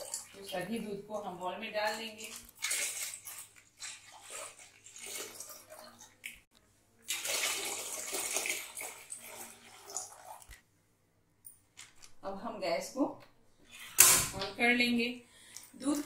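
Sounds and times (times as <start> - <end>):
milk pouring into metal pot: 1.9 - 10.6.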